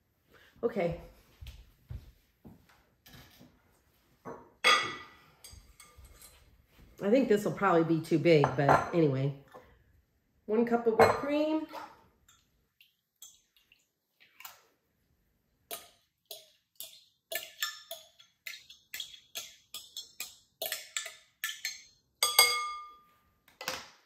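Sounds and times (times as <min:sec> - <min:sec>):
metal spoon tapping glass cup: 0:18.9 - 0:23.0.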